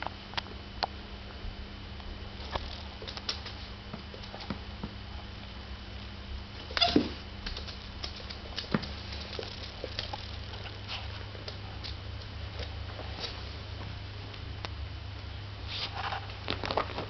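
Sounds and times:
squeak: 6.7 - 7.2
claws and toys tapping on floor: 6.7 - 13.4.

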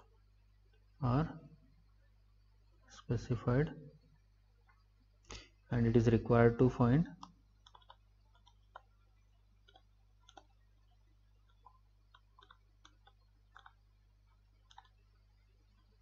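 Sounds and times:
low steady hum: 0.0 - 16.0
stylus clicks and taps: 7.1 - 16.0.

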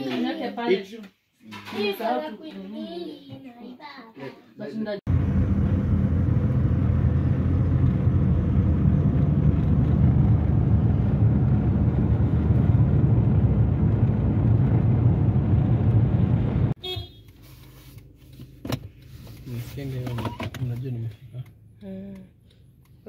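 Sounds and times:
car engine and road rumble: 5.1 - 23.0.

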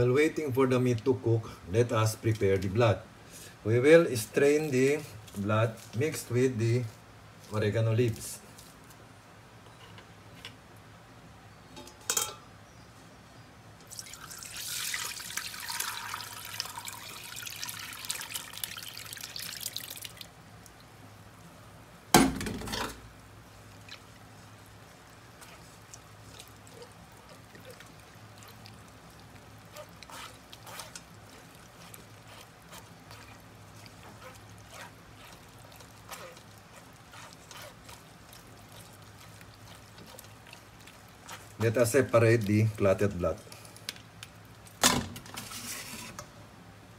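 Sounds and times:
liquid pouring into a pot: 13.8 - 20.8
spoon scraping a strainer mesh: 29.6 - 40.6.

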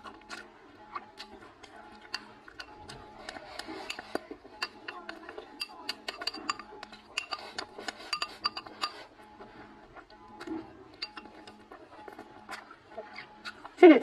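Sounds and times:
chopsticks clinking on ceramic bowl: 2.0 - 9.1, 10.4 - 11.7.

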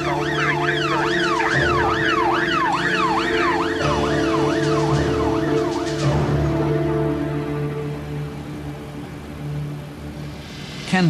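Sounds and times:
siren yelping: 0.0 - 7.1.

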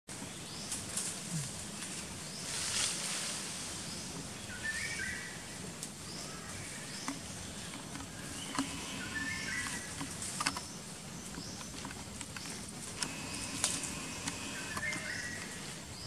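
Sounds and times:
steady high hiss: 0.4 - 16.0
bird chirping: 3.9 - 16.0.

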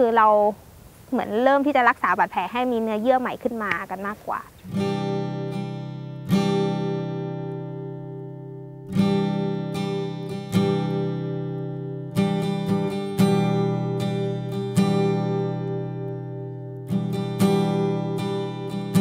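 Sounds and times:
acoustic guitar chords: 4.6 - 19.0.

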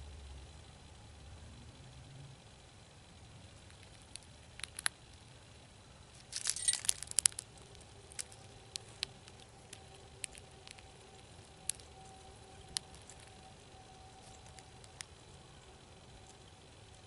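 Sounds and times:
squirrel chewing seeds: 3.5 - 17.0
squirrel rattling seeds: 3.6 - 5.4, 6.0 - 17.0.

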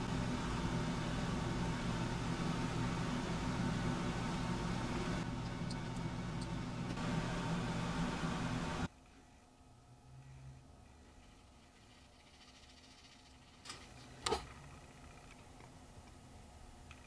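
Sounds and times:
low hum: 0.0 - 16.6.

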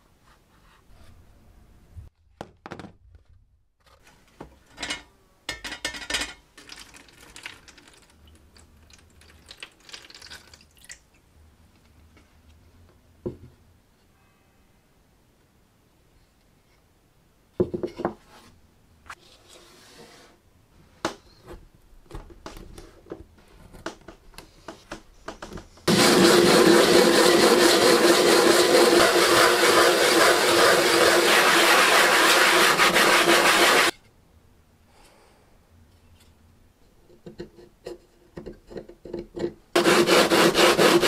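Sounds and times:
wood rubbing on sandpaper: 25.9 - 33.9, 39.8 - 41.0.

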